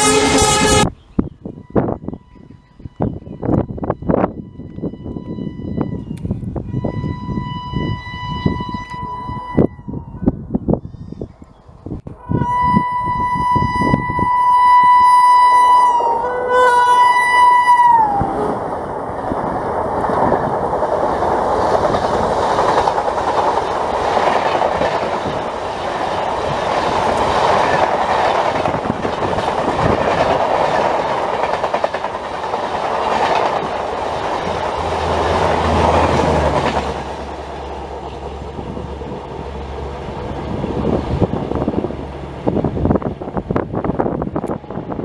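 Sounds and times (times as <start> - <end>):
train horn: 0.0 - 1.0, 6.7 - 10.0, 12.1 - 18.5
train passing with wheel clatter: 0.0 - 9.7, 12.5 - 45.0.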